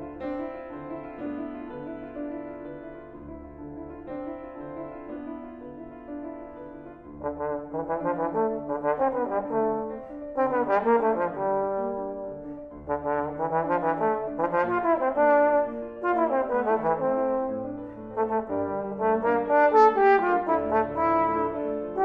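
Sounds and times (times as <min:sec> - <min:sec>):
piano accompaniment: 0:00.0 - 0:22.0
trombone playing slow melody: 0:07.2 - 0:22.0.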